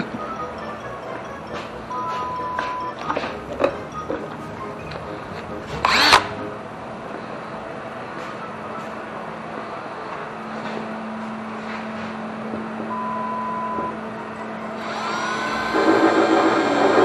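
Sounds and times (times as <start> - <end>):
low shop hum: 0.0 - 17.0
cordless drill whining: 5.8 - 6.3, 14.8 - 17.0.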